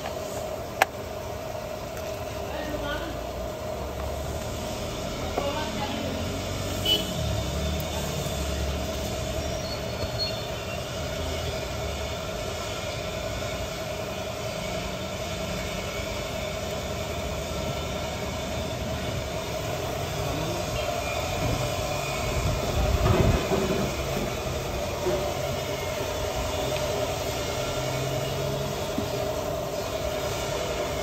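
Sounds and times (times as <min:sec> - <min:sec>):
machine whine over rumble: 0:07.3 - 0:31.0.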